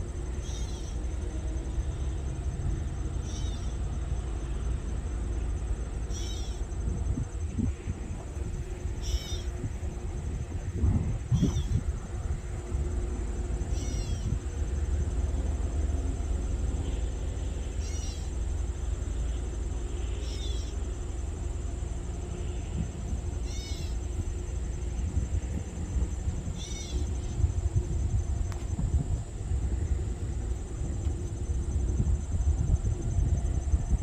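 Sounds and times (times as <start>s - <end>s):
diesel locomotive engine rumbling: 0.0s - 34.0s
high mewing calls: 0.4s - 1.2s, 3.2s - 3.8s, 6.0s - 6.8s, 8.8s - 9.7s, 11.2s - 11.9s, 13.6s - 14.5s, 17.6s - 18.6s, 20.0s - 20.9s, 23.4s - 24.2s, 26.4s - 27.6s.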